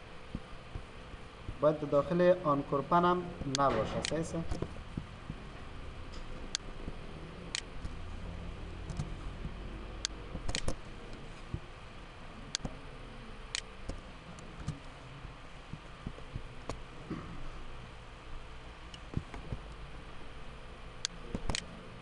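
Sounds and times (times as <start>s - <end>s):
low background hum: 0.0s - 22.0s
keyboard and mouse clicks: 8.8s - 11.6s, 12.5s - 12.8s, 13.5s - 14.8s, 21.0s - 21.7s.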